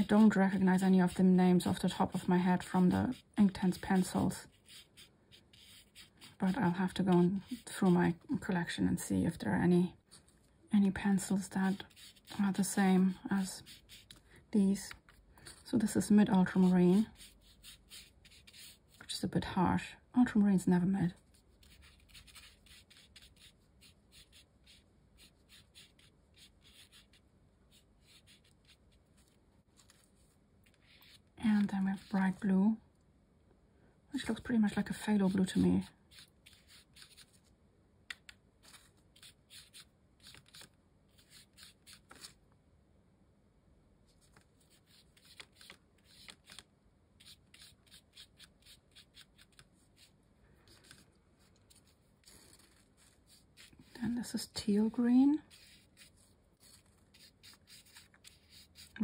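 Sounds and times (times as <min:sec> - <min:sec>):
paintbrush scrubbing on paper: 0:00.0 - 0:08.2, 0:11.3 - 0:14.2, 0:14.9 - 0:19.0, 0:21.2 - 0:32.4, 0:35.2 - 0:37.4, 0:38.6 - 0:42.4, 0:44.3 - 0:46.6, 0:47.2 - 0:59.0.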